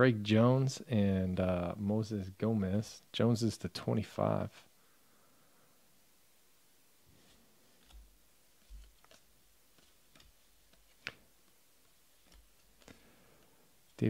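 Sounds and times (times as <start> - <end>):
trading cards flipped by hand: 7.7 - 13.5.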